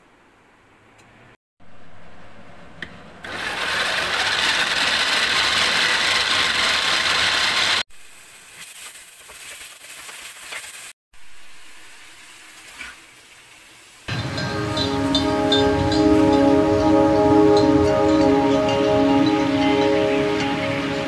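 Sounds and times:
electric chopper motor running: 3.2s - 7.8s.

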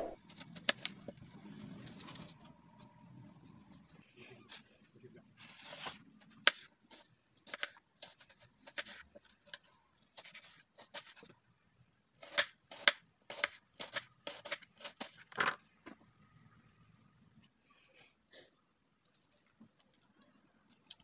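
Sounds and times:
knife slicing apple on cutting board: 12.2s - 15.2s.

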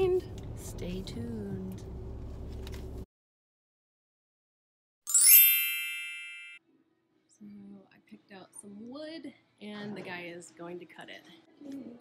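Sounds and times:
bright chime sound effect: 5.1s - 6.6s.

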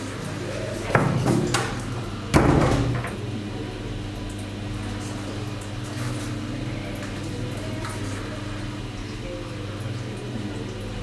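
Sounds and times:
door shutting with a thud: 2.3s - 3.2s.

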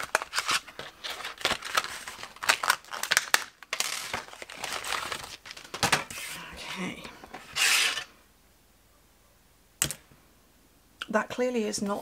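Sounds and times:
plastic packaging crinkling: 0.0s - 6.3s.

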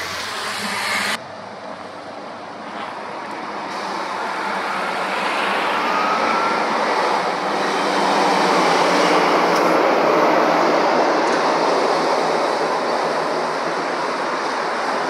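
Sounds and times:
heavy lorry approaching: 0.0s - 15.0s.

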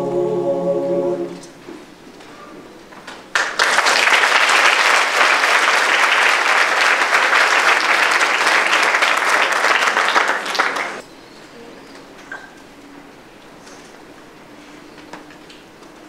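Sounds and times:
audience applauding: 3.3s - 11.0s.

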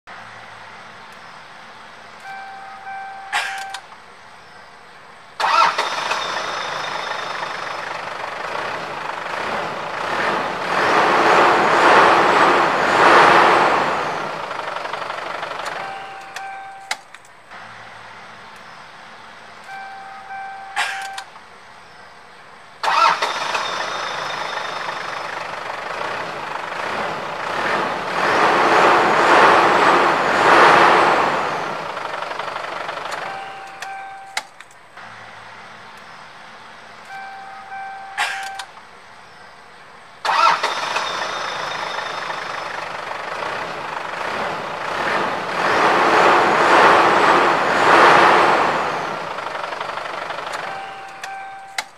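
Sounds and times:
car engine starting: 0.0s - 51.9s
short steady tone: 2.2s - 4.6s, 15.7s - 17.0s, 19.6s - 21.3s, 33.2s - 34.4s, 37.0s - 38.7s, 50.6s - 51.8s
click: 3.3s - 4.0s, 15.6s - 17.4s, 20.8s - 21.5s, 33.1s - 34.8s, 35.9s - 36.1s, 38.2s - 38.9s, 50.5s - 51.9s.

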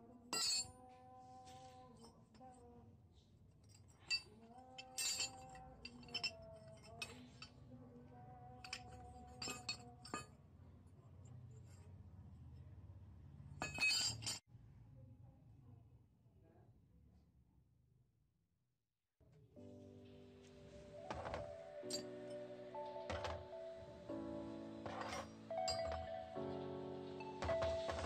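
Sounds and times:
metal spanners clinking: 0.4s - 0.7s, 3.8s - 7.5s, 8.7s - 10.2s, 13.6s - 14.4s, 21.0s - 22.4s, 24.8s - 26.2s.

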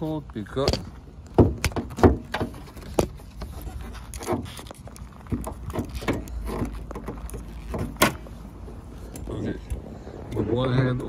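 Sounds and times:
clicks and knocks on car hood: 0.6s - 3.5s, 5.3s - 8.2s.

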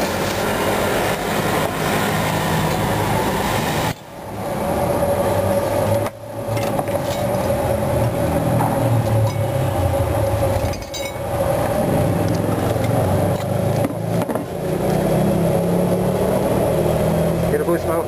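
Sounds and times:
mechanical hum with whine: 0.0s - 18.0s
metal spoon clinking on bowls: 9.2s - 9.5s, 10.6s - 11.2s.

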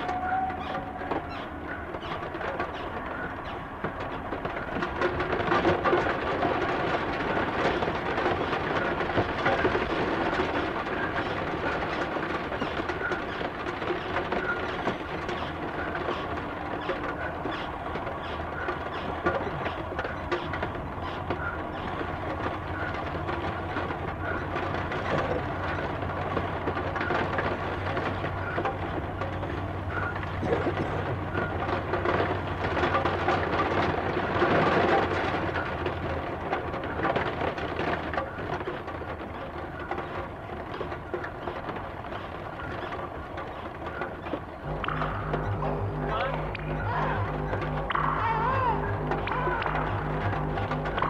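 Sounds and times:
dense electronic rumbling: 44.5s - 51.0s
steady low hum: 44.5s - 51.0s.

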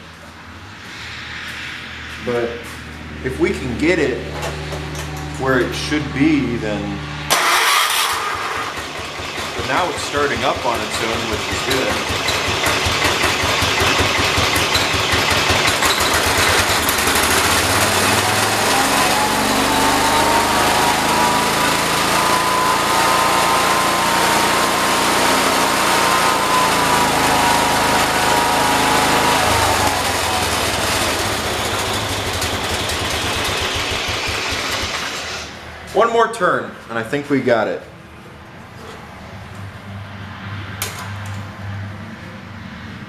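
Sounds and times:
garden tractor engine running: 3.5s - 35.6s.

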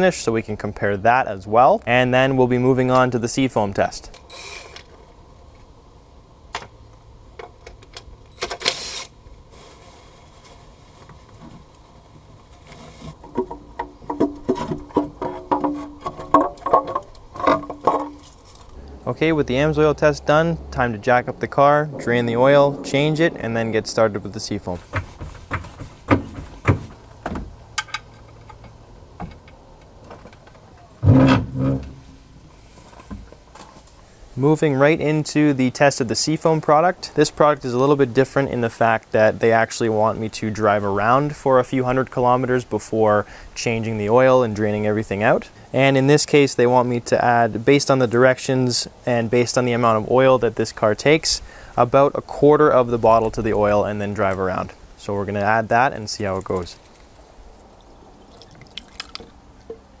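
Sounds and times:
low metal clunk: 31.0s - 32.2s.

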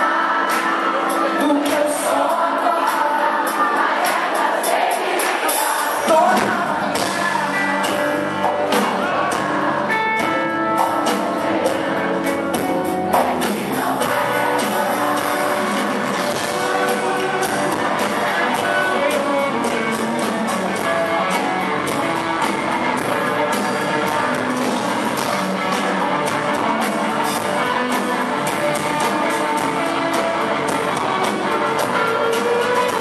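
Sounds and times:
live rock band playing: 0.0s - 33.0s.

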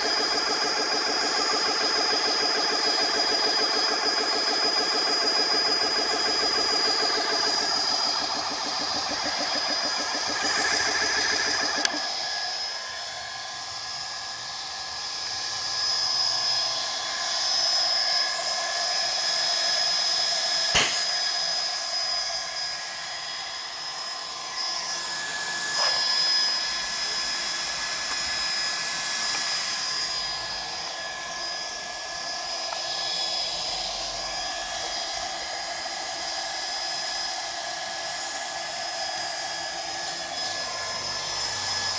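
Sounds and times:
air compressor whine: 0.0s - 41.9s
pulsing pumping beat: 4.4s - 11.8s
sharp click: 20.7s - 21.2s.

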